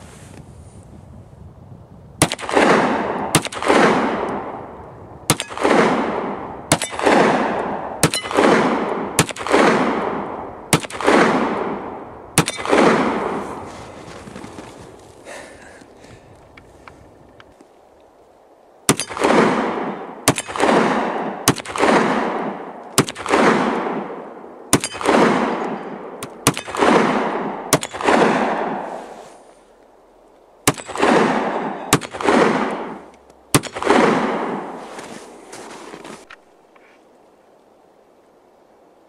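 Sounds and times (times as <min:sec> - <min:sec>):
pistol shots with echo: 0:02.2 - 0:04.6, 0:05.3 - 0:13.5, 0:18.9 - 0:28.9, 0:30.6 - 0:34.8.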